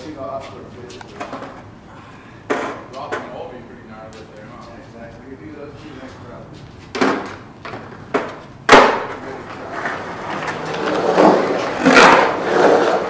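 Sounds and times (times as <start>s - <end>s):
skateboard wheels rolling rumble: 6.9s - 13.0s
skateboard clacks: 7.0s - 13.0s.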